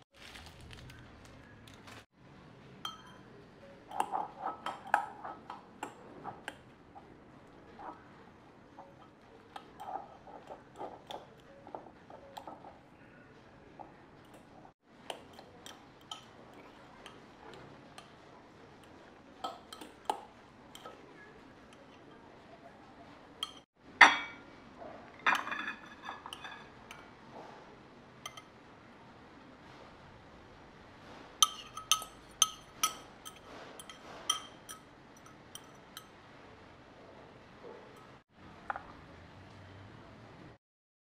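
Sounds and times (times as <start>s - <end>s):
fork clinking on crockery: 2.9s - 3.3s, 31.4s - 36.2s.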